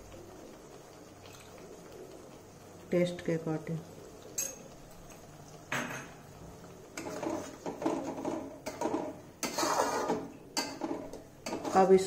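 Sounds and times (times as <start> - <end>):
metal spatula scraping pan: 7.0 - 12.0.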